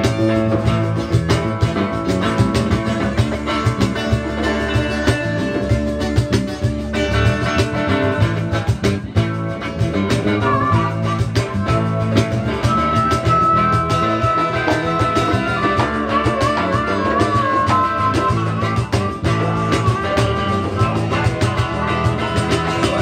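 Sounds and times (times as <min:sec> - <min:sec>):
blues rock band playing: 0:00.0 - 0:23.0
harmonica lead line: 0:09.9 - 0:23.0.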